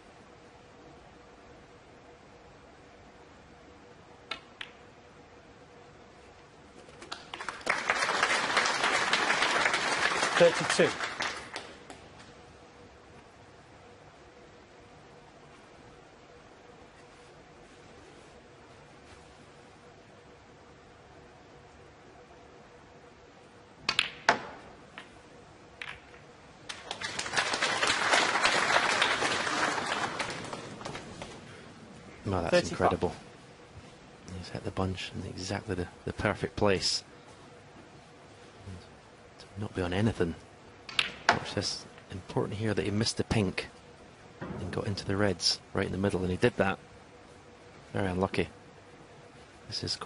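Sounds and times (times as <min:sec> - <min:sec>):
snooker balls clicking: 0:04.2 - 0:04.9, 0:23.8 - 0:28.0, 0:29.0 - 0:31.5, 0:40.8 - 0:42.1
snooker ball clicks: 0:04.3 - 0:04.9, 0:23.8 - 0:25.2, 0:25.8 - 0:26.9, 0:40.8 - 0:41.5
audience applause: 0:07.3 - 0:11.8, 0:26.7 - 0:31.5
balls knocking softly: 0:25.8 - 0:26.3.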